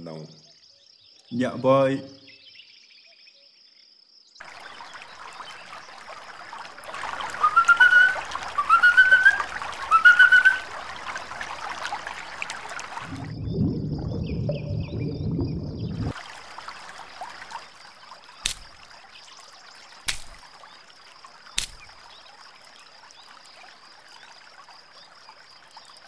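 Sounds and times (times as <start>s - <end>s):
muffled underwater rush of water: 4.4s - 24.8s
trickling stream: 4.4s - 26.0s
sharp clicks: 18.4s - 18.8s, 20.1s - 20.4s, 21.6s - 21.9s.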